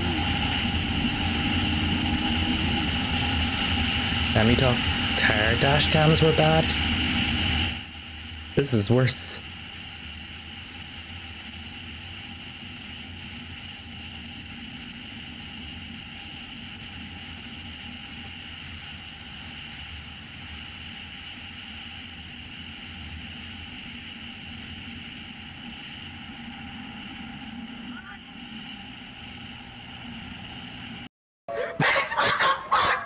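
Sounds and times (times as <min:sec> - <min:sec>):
wind and road noise: 0:00.0 - 0:08.6.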